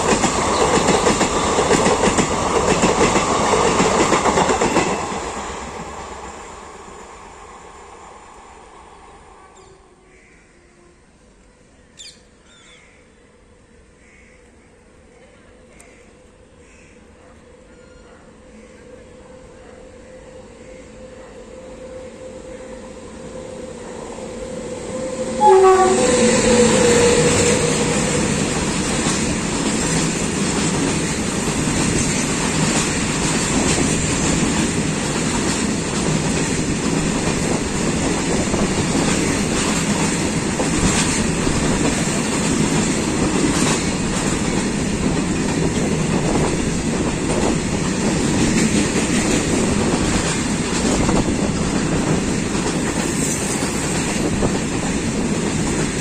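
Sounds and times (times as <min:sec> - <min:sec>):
freight train rumbling past: 0:00.0 - 0:11.2, 0:18.4 - 0:56.0
train horn: 0:09.2 - 0:11.2, 0:19.2 - 0:29.0.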